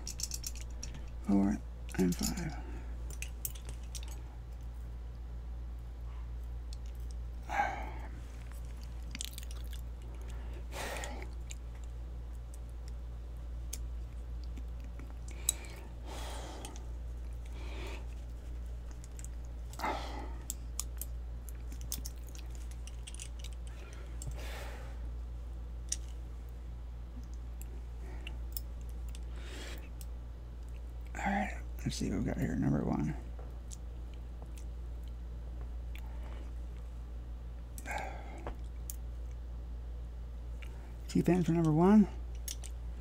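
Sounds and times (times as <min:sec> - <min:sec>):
small metal parts clicking: 0:00.0 - 0:01.2, 0:01.9 - 0:04.6, 0:20.4 - 0:24.4
steady low hum: 0:00.0 - 0:43.0.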